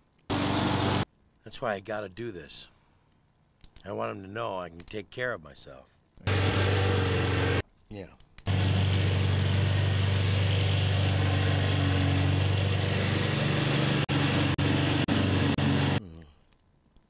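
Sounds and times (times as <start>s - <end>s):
lawnmower engine idling: 0.3s - 1.0s, 6.3s - 7.6s, 8.5s - 16.0s.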